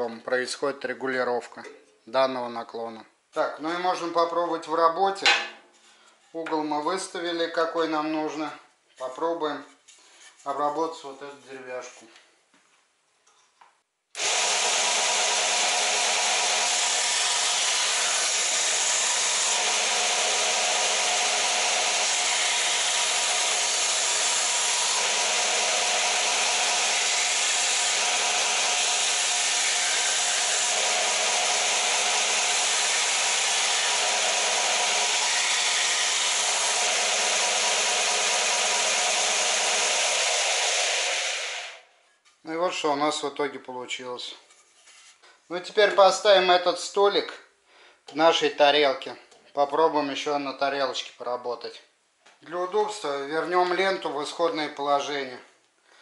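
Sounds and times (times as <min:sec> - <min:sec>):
belt sander rasping on wood: 0:14.2 - 0:41.8
sander motor hum: 0:14.2 - 0:41.8.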